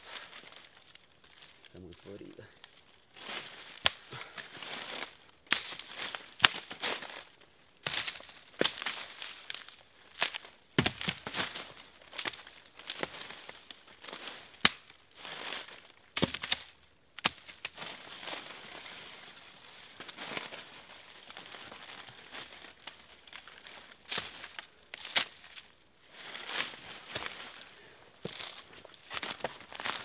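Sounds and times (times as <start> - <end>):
dry leaves crunching underfoot: 0.0 - 30.0
sticks cracking: 3.7 - 7.0, 7.9 - 13.8, 14.5 - 15.0, 15.6 - 18.5, 21.3 - 25.7, 27.1 - 30.0.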